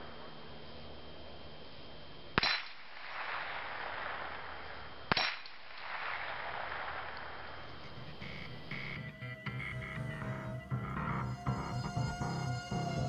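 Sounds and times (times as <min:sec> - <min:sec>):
rifle shots: 0:02.4 - 0:08.4.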